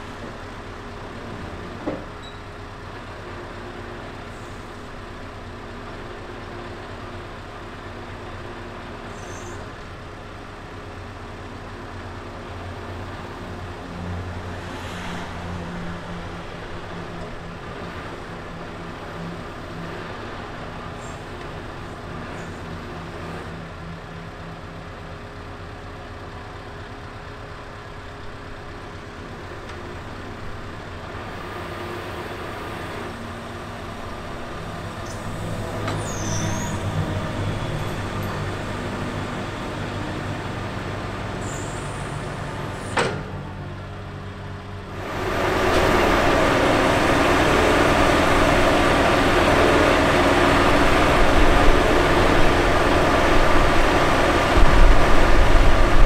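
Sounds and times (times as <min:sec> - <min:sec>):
diesel truck engine running: 0:00.0 - 0:56.0.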